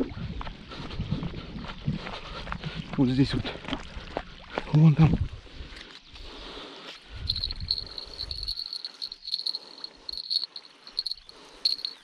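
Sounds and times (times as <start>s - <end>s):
cricket chirping: 5.7s - 12.0s.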